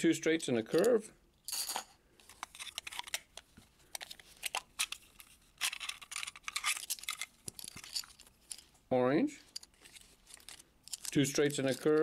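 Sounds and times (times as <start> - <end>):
packaging crinkling: 3.9 - 8.7
plastic toy pieces clicking: 10.3 - 12.0.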